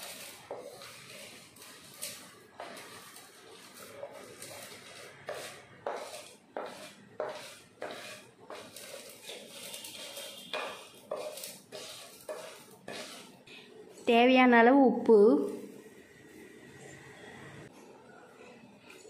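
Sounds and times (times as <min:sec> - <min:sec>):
spatula scraping a plate: 0:00.0 - 0:13.8.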